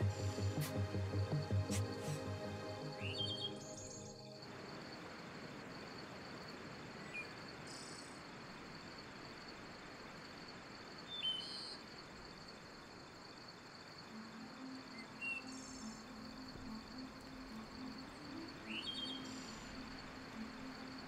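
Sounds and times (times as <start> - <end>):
bird chirps: 0.0 - 4.3, 18.2 - 20.0
high insect trill: 0.0 - 21.0.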